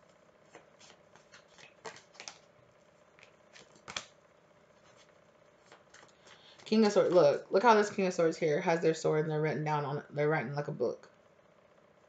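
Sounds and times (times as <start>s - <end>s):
cards tapping and sliding: 0.5s - 2.5s, 3.2s - 4.2s.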